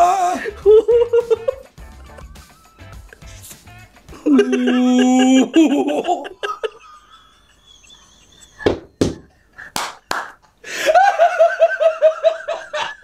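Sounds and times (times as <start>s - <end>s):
men laughing: 0.0s - 2.4s, 4.1s - 8.7s, 10.6s - 13.0s
sharp hand claps: 8.7s - 10.5s.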